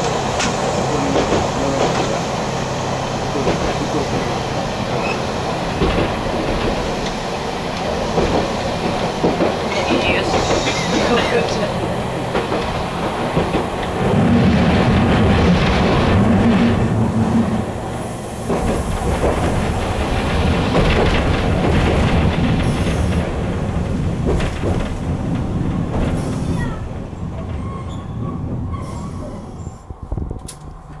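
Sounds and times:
rail clatter: 0.0s - 31.0s
tram motor and wheel rumble: 0.0s - 31.0s
high wheel squeals: 27.5s - 29.8s.

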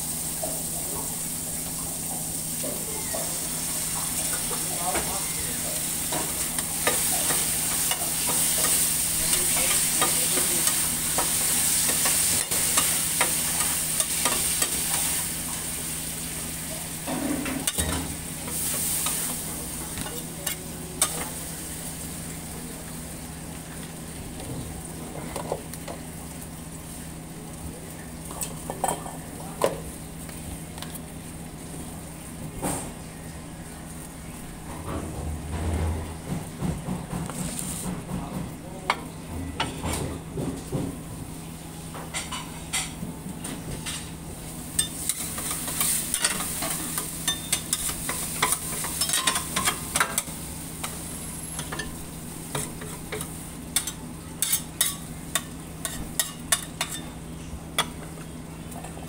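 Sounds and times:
beef sizzling on a griddle: 0.0s - 24.4s, 44.3s - 58.8s
spatula clicking and scraping metal: 52.5s - 57.1s.

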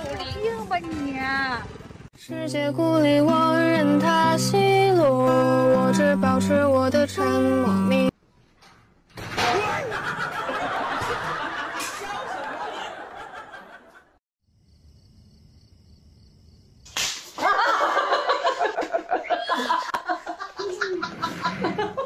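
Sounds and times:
voices: 0.0s - 2.0s
laughter and excited voices: 9.6s - 14.2s, 17.4s - 22.0s
slap on a face: 16.9s - 17.4s.

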